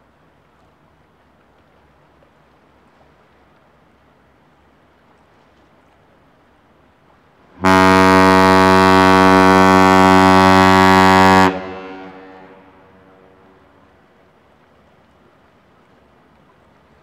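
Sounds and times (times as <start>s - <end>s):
deep ship's horn blast: 7.6s - 14.0s
faint low rumble: 11.3s - 14.6s.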